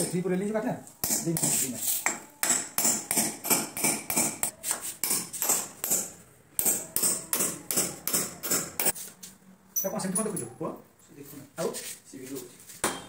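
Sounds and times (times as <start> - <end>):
hammer tapping on steel frame: 1.0 - 8.9.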